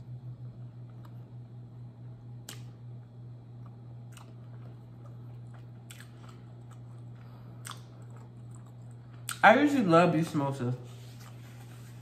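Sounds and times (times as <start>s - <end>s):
low hum: 0.0s - 12.0s
close-up chewing: 3.6s - 9.4s.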